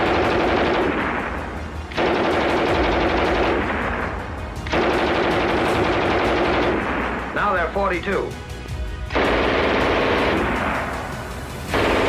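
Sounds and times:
machine gun firing bursts: 0:00.0 - 0:07.6, 0:09.1 - 0:12.0.

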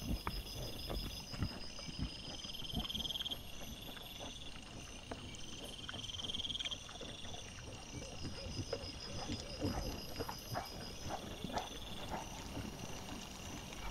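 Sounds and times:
boars rooting in leaf litter: 0:00.0 - 0:13.9
night insects trilling: 0:00.0 - 0:13.9.

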